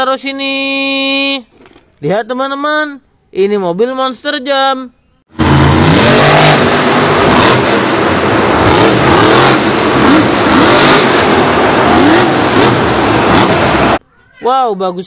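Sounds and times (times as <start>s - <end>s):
truck engine revving hard: 5.3s - 14.0s.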